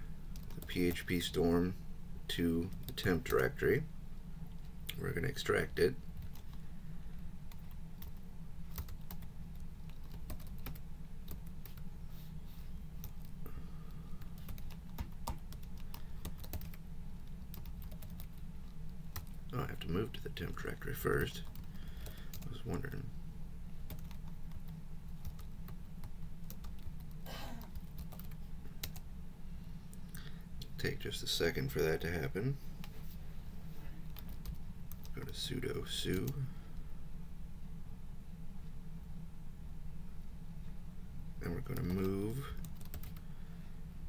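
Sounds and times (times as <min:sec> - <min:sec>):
steady low hum: 0:00.0 - 0:44.0
keyboard typing: 0:07.5 - 0:11.8, 0:14.3 - 0:16.8, 0:17.4 - 0:18.4, 0:23.9 - 0:24.6, 0:25.2 - 0:29.0, 0:42.6 - 0:43.2.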